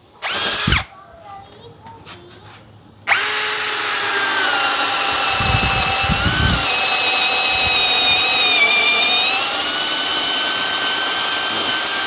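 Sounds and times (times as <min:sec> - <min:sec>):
cordless drill whining: 0:00.2 - 0:00.9, 0:03.1 - 0:12.0
drill bit knocking into wood: 0:03.1 - 0:12.0.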